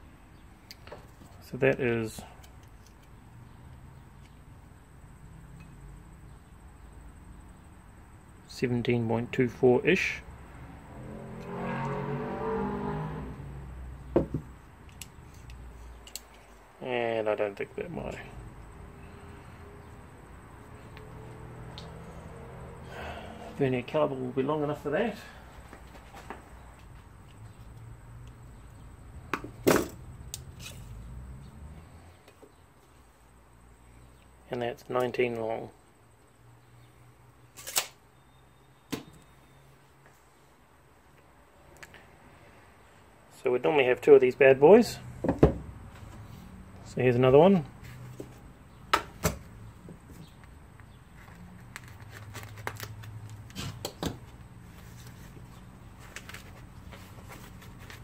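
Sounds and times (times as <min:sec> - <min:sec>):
paper and foam wrap crinkling: 0:51.6 - 0:53.6.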